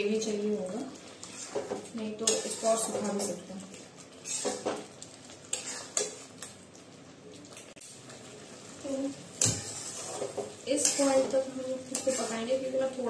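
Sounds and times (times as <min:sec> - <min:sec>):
gravy simmering sizzle: 0:00.0 - 0:13.0
metal spatula scraping pan: 0:01.2 - 0:03.3, 0:04.2 - 0:04.9, 0:05.5 - 0:06.2, 0:09.3 - 0:13.0.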